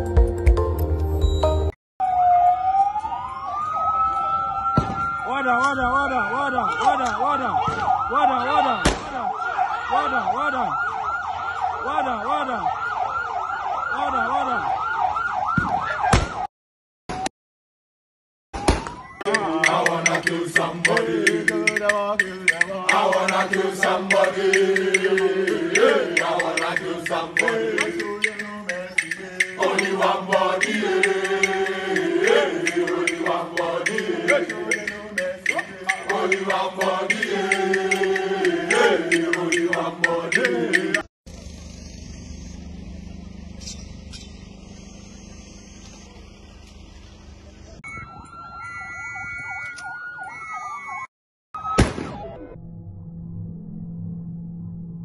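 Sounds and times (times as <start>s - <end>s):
siren tone: 1.4s - 16.5s, 18.6s - 20.4s, 22.5s - 39.4s, 41.3s - 55.0s
outdoor noise: 2.0s - 16.5s, 18.5s - 51.0s
group chanting with music: 19.3s - 41.1s.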